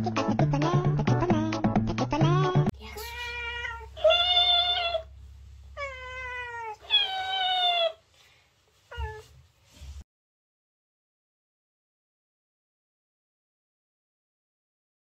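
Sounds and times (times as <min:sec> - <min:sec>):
cat meowing: 0:02.8 - 0:05.1, 0:05.8 - 0:08.0, 0:08.9 - 0:09.3.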